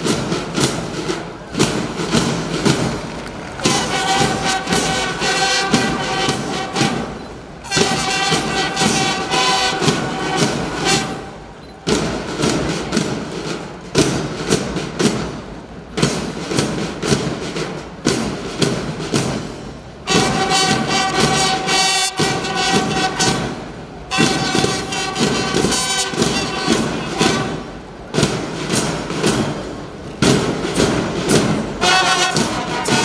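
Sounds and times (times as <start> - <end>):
brass band phrases: 0.0 - 13.0, 20.0 - 33.0
steady drum beats: 0.0 - 33.0.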